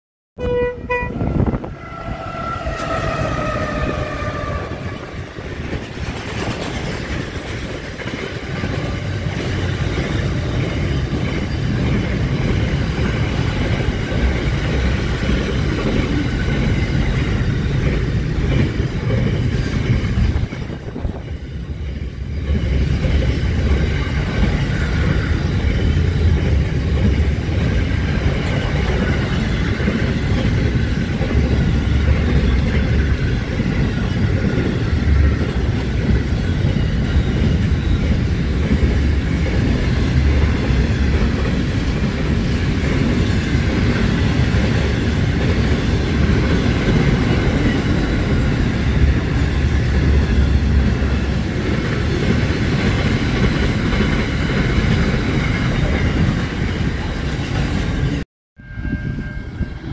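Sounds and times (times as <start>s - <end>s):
train horn chord: 0.4s - 5.4s
freight train rumble: 0.4s - 59.9s.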